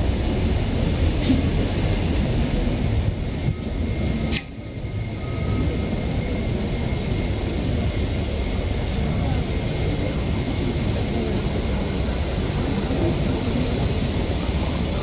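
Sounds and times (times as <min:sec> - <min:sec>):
city street traffic rumble: 0:00.0 - 0:15.0
sharp click: 0:04.3 - 0:04.6.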